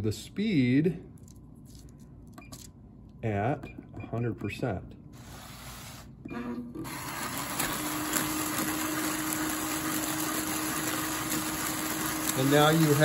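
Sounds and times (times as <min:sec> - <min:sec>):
machine blower noise: 0:06.8 - 0:13.0.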